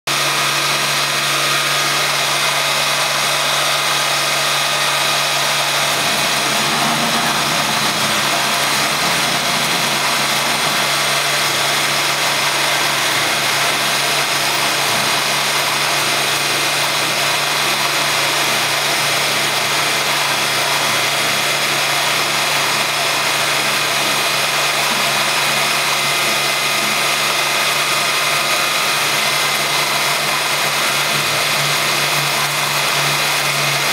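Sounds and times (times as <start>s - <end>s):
milling machine cutting wood: 0.1s - 33.9s
motor whine: 0.7s - 25.6s.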